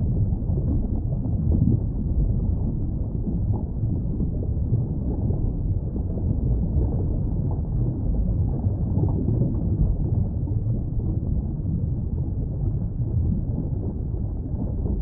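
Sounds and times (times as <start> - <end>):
muffled underwater rumble: 0.0 - 15.0.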